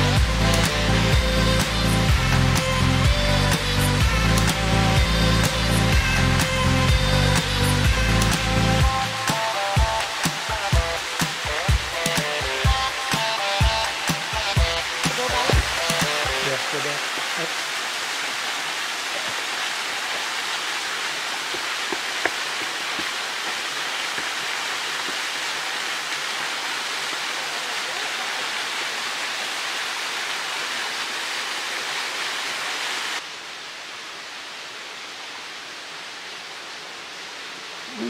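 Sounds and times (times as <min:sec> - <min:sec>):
small waterfall splashing: 0:08.2 - 0:38.0.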